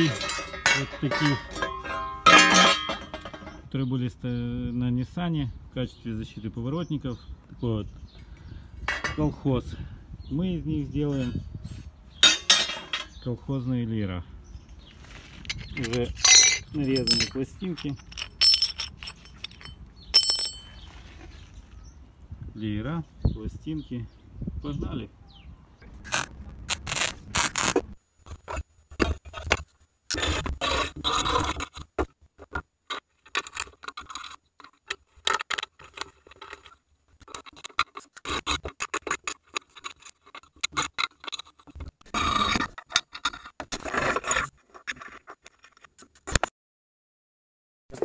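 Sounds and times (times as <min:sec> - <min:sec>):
metal scraping: 0:00.0 - 0:03.7, 0:12.2 - 0:13.2, 0:15.1 - 0:21.6, 0:25.9 - 0:46.4.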